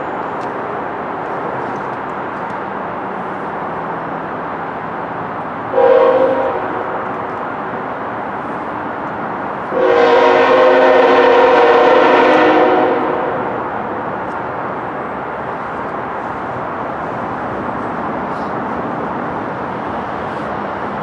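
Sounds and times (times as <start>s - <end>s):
steady background noise: 0.0s - 21.0s
locomotive air horn blast: 5.7s - 6.7s, 9.7s - 13.6s.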